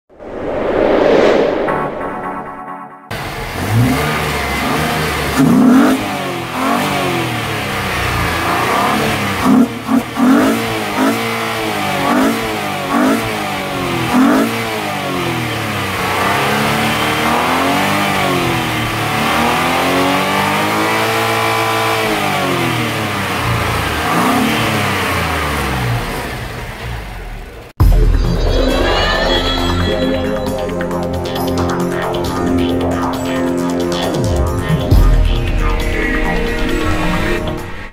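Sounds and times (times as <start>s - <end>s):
car engine revving: 3.1s - 27.8s.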